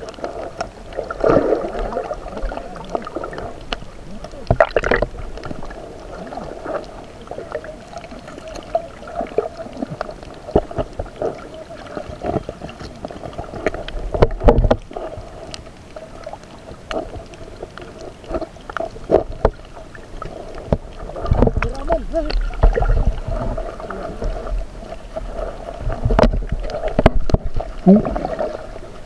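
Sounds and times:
water moving against camera case: 16.8 - 28.0.

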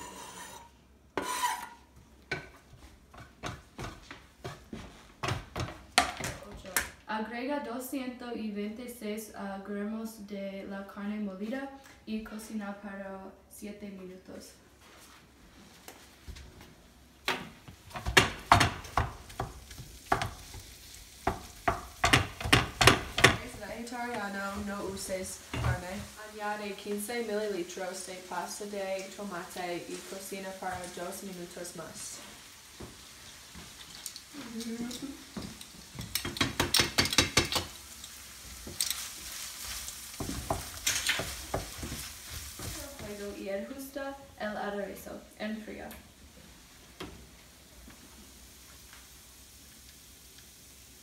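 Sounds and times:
wooden spoon scraping a pan: 0.0 - 4.7, 38.0 - 43.4
faint sizzle: 6.2 - 51.0.

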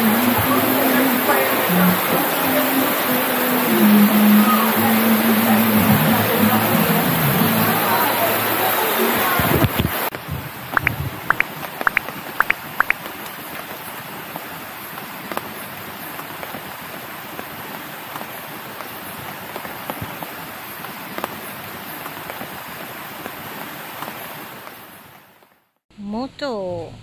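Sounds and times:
water rushing: 0.0 - 25.4
sharp ticks: 10.8 - 13.1.

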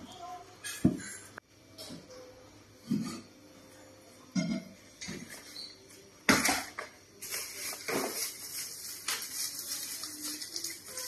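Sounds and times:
plastic bag crinkling: 7.2 - 11.0.

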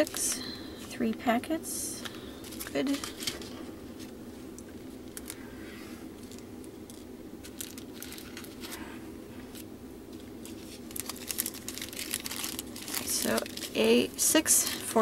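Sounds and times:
plastic packets crinkling: 0.0 - 1.0, 2.0 - 4.1, 5.0 - 5.4, 6.2 - 8.8, 9.5 - 15.0
steady low hum: 0.0 - 15.0.

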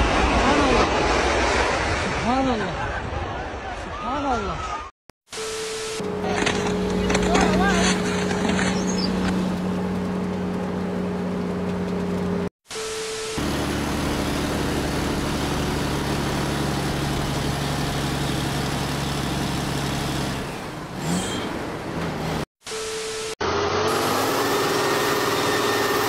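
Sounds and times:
diesel truck engine running: 6.0 - 12.5, 13.4 - 22.5.

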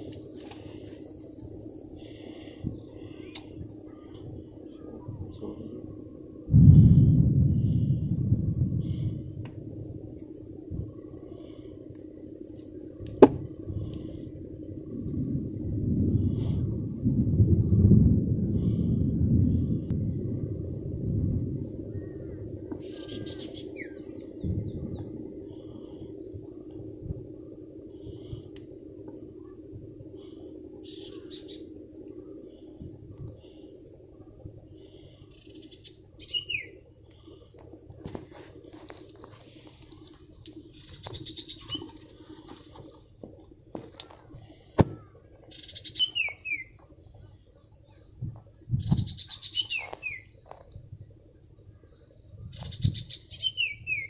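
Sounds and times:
low outdoor rumble: 0.0 - 53.4
insect high wavering trill: 0.0 - 54.0
steady low hum: 0.0 - 54.0
small birds chirping: 0.1 - 5.8, 21.9 - 26.4, 27.4 - 37.6, 38.5 - 42.4, 43.6 - 50.8, 51.6 - 54.0
faint high chirps: 21.8 - 26.4.

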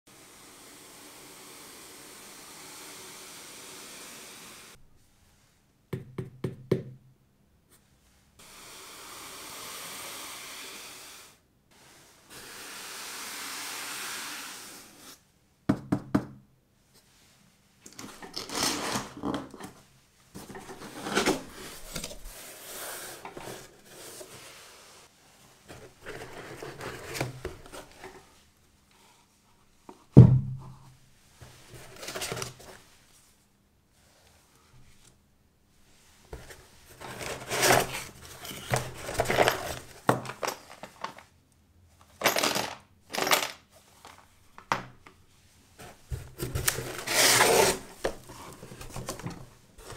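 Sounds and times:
gloves sliding over cardboard: 8.0 - 15.3, 16.9 - 29.8, 35.7 - 41.2, 45.3 - 49.9
cardboard and fabric rustling: 18.0 - 24.7, 31.4 - 33.1, 36.2 - 41.4, 45.7 - 49.9
loud thump: 30.2 - 30.7.

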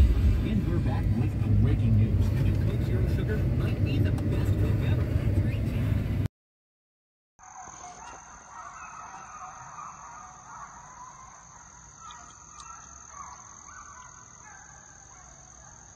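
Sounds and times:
insects droning: 7.4 - 15.9
hounds baying: 7.5 - 15.9.

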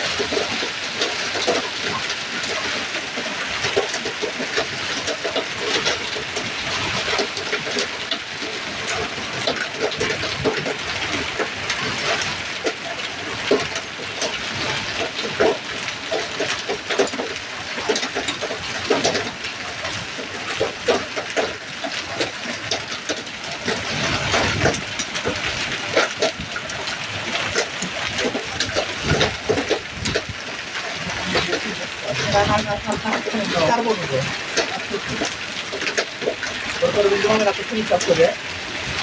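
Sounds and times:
hailstones ticking: 0.0 - 39.0
heavy rain hissing: 20.4 - 39.0.

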